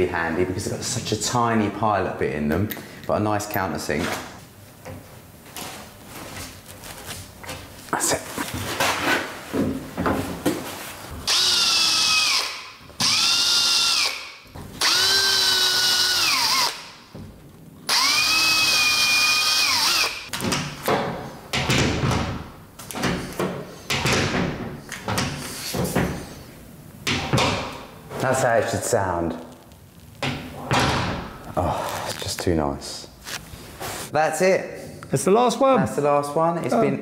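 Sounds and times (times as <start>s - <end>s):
cordless drill whine: 11.3s - 14.2s, 14.8s - 16.8s, 17.9s - 20.2s.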